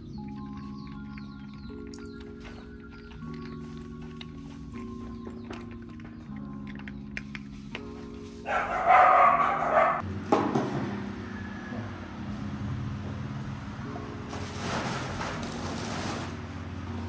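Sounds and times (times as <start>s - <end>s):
background music with held notes: 0.0s - 17.0s
animal harsh cry: 8.5s - 10.0s.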